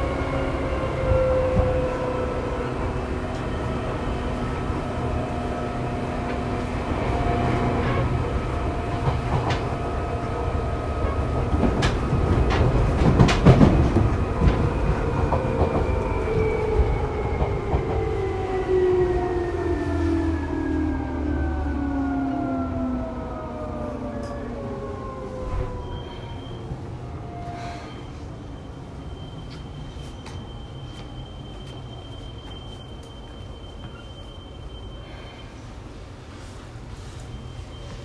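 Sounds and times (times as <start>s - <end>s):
train wheels rumbling on rail: 0.0s - 38.0s
rail-joint clicks: 8.9s - 9.8s, 11.0s - 16.5s, 24.2s - 24.4s, 29.4s - 34.2s.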